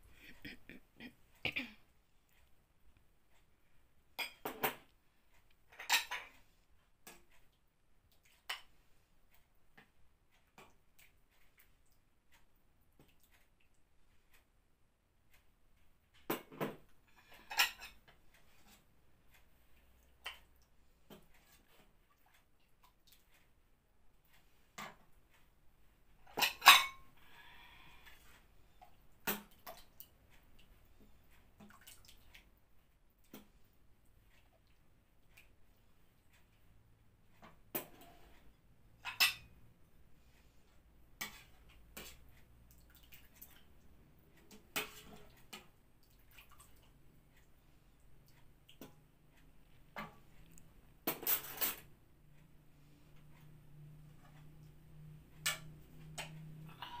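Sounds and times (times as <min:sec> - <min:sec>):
ladle clinking on pot and bowls: 0:17.3 - 0:18.0, 0:26.3 - 0:27.1, 0:39.0 - 0:39.5.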